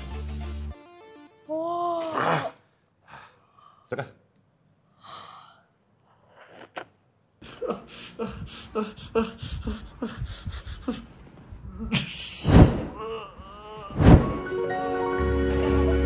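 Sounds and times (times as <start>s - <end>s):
person grunting and groaning: 1.7s - 2.6s, 7.5s - 10.3s, 12.8s - 14.4s.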